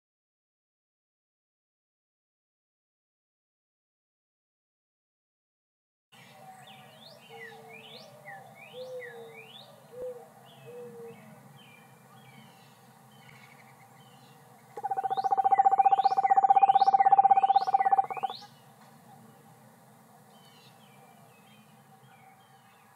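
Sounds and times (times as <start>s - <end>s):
songbirds chirping: 6.2s - 22.9s
owl trilling: 14.8s - 18.4s.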